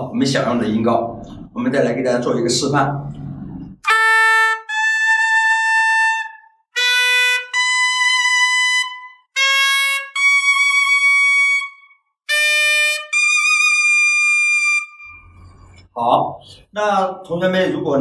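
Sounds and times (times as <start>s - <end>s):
suona playing notes: 3.8s - 15.9s.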